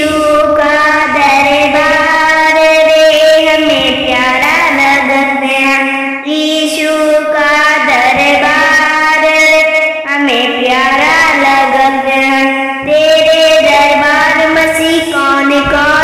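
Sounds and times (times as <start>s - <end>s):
person chanting devotional song: 0.0s - 16.0s.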